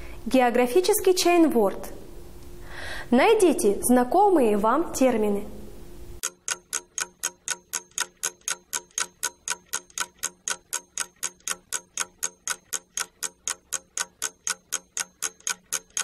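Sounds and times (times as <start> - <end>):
clock ticking: 6.2 - 16.0.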